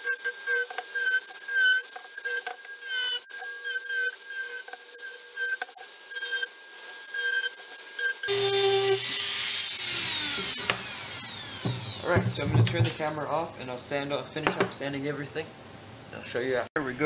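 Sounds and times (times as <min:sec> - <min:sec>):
rotary tool sanding wood: 0:00.0 - 0:12.5.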